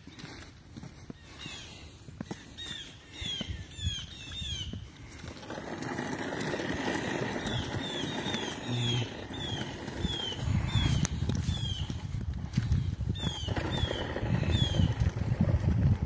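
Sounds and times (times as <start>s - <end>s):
songbird whistling: 2.6s - 4.8s.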